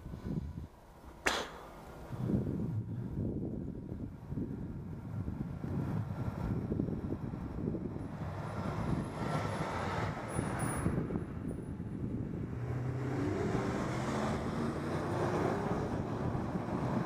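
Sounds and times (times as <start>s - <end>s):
wind buffeting microphone: 0.0s - 0.8s, 1.8s - 17.0s
vehicle engine passing: 8.1s - 17.0s.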